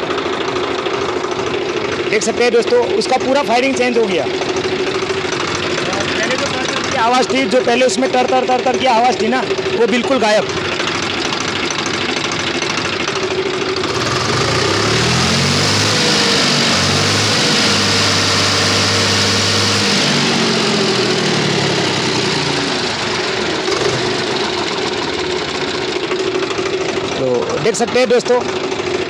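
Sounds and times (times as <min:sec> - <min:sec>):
tractor diesel engine revving: 0:10.6 - 0:27.4.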